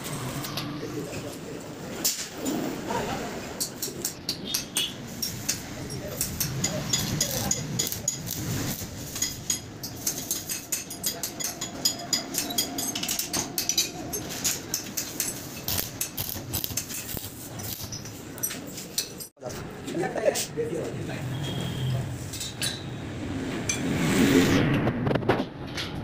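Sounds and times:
welding arc crackling: 5.0 - 10.7, 14.6 - 18.0.

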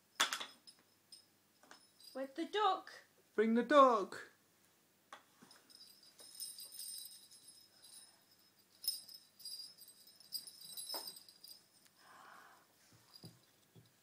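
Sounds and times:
small bells jingling: 0.0 - 2.5, 5.4 - 14.0.

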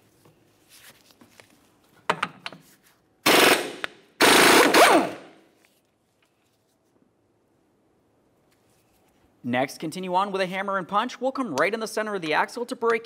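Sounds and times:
impact wrench hammering: 3.3 - 5.3.

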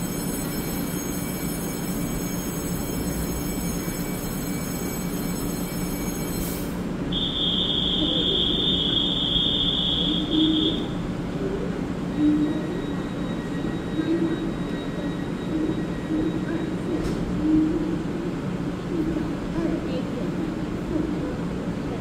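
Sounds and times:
high-pitched electronic tone: 0.0 - 10.9
faint high whine: 0.0 - 11.0
train equipment hum: 0.0 - 22.0.

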